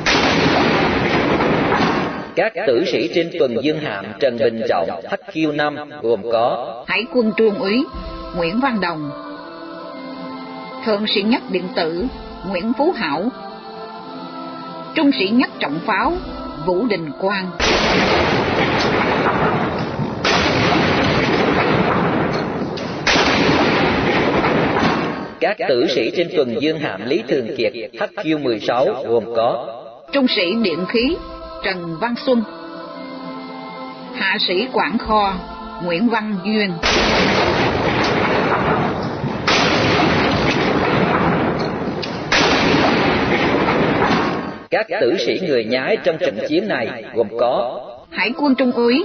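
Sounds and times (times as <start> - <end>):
gun salute shots: 0.0 - 2.4, 17.6 - 25.4, 36.8 - 44.7
rumble of gunshot echo: 0.0 - 2.4, 17.6 - 25.4, 36.8 - 44.7.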